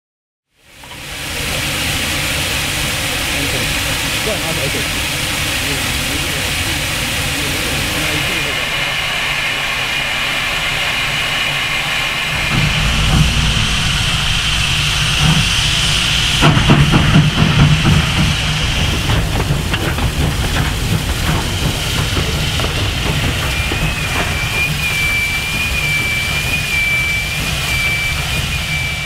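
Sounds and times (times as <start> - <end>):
steam locomotive chuffs and knocks: 0.7 - 29.0
steam hissing: 0.9 - 29.0
low rumble: 12.0 - 23.7.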